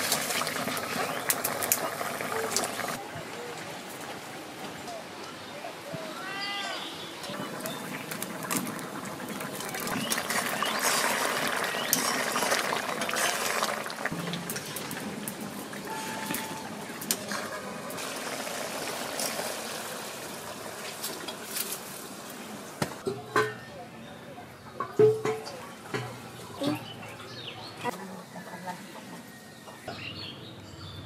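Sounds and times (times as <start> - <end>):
curry bubbling and hissing: 7.3 - 15.9.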